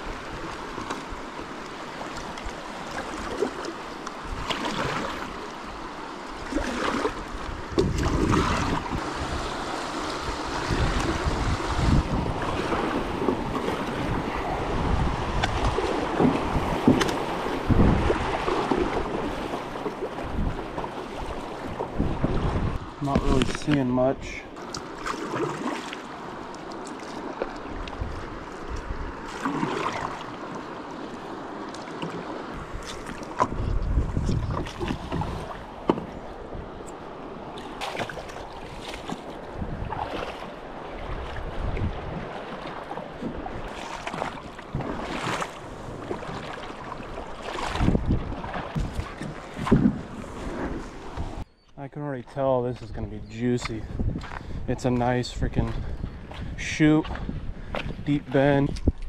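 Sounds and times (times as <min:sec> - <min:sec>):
river water splashing: 0:00.0 - 0:51.5
wind on microphone: 0:06.4 - 0:24.3, 0:27.6 - 0:30.2, 0:32.5 - 0:37.0, 0:37.8 - 0:51.6, 0:52.7 - 0:59.0.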